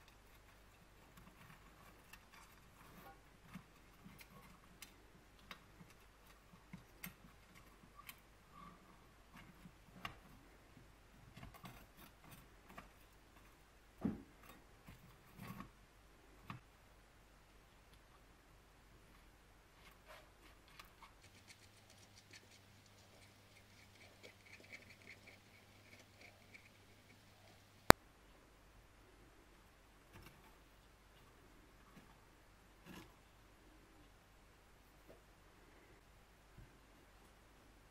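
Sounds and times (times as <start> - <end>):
ceramic beads clicking and scratching: 0.0 - 10.4, 11.2 - 13.6, 19.9 - 27.6.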